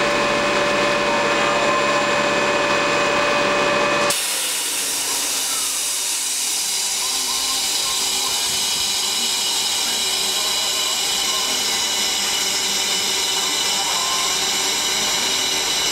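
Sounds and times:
steady whining tones: 0.0s - 15.9s
loud steady hiss: 4.1s - 15.9s.

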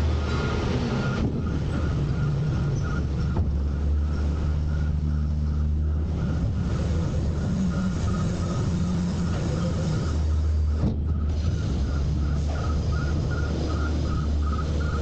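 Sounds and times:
garbage truck engine running: 0.0s - 15.0s
pulsing high tone: 0.2s - 15.0s.

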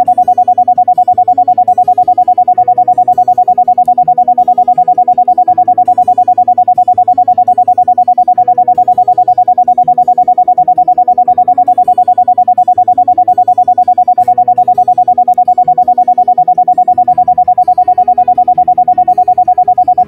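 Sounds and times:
electronic tone pulsing rapidly: 0.0s - 20.0s.

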